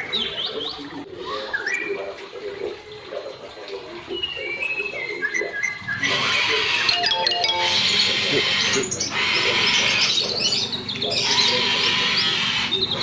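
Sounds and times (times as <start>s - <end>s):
parrots chattering: 4.1s - 13.0s.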